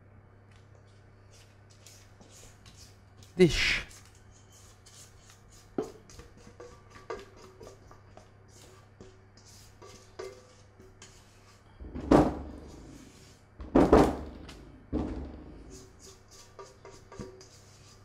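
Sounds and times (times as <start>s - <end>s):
spatula scraping batter from pan: 4.3s - 11.7s.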